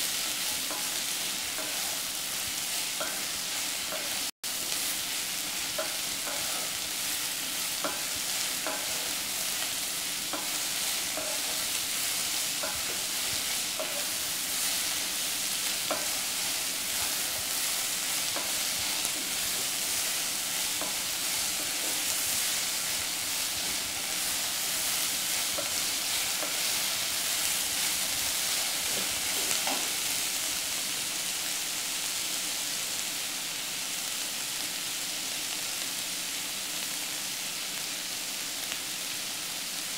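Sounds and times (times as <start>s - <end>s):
onions sizzling in oil: 0.0s - 39.9s
wooden spatula scraping a pan: 10.3s - 15.0s, 15.6s - 30.1s.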